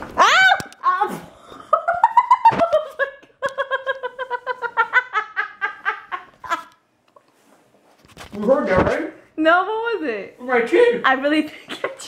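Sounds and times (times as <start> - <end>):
woman laughing hard: 1.7 - 6.7.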